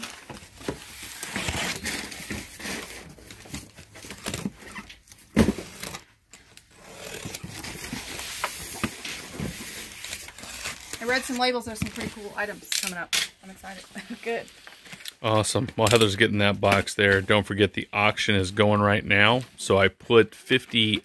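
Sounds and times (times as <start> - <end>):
cardboard scraping and crinkling: 0.0 - 12.7.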